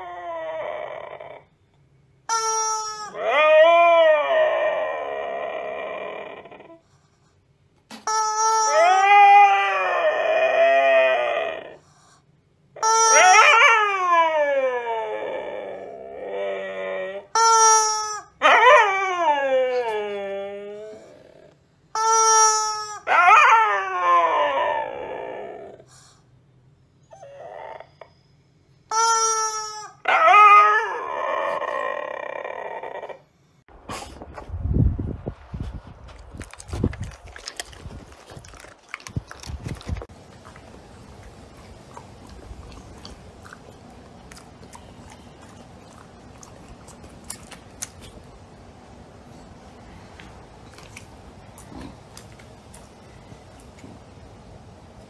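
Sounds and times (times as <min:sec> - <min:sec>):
dog howling: 0:00.0 - 0:01.5, 0:03.0 - 0:06.8, 0:08.7 - 0:11.8, 0:12.8 - 0:17.4, 0:18.4 - 0:21.5, 0:23.0 - 0:25.8, 0:29.8 - 0:33.3
rubber chicken toy squawk: 0:02.3 - 0:03.2, 0:07.9 - 0:09.4, 0:12.8 - 0:13.6, 0:17.3 - 0:18.3, 0:22.0 - 0:23.1, 0:28.9 - 0:30.0
dog chewing crunchy food: 0:36.0 - 0:48.4, 0:50.3 - 0:53.0
wet mouth clicks: 0:36.4 - 0:48.3, 0:50.7 - 0:52.9.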